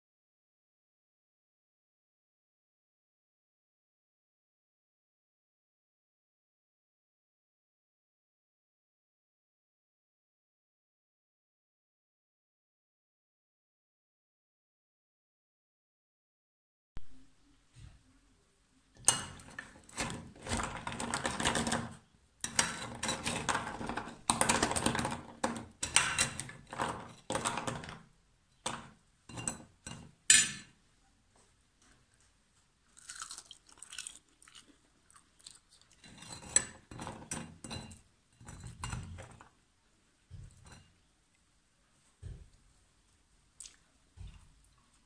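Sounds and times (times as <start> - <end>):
sticky pastry crunching: 32.8 - 36.1.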